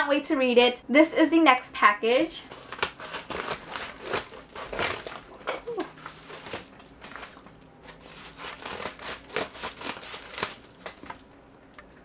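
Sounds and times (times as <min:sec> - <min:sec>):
scissors cutting paper: 0:02.5 - 0:05.3, 0:07.9 - 0:10.7
paper crinkling and rustling: 0:02.5 - 0:11.4.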